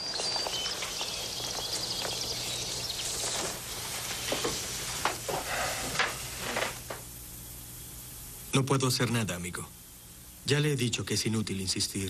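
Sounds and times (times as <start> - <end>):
faint high chirps: 0.0 - 4.7
steady hiss: 0.0 - 12.0.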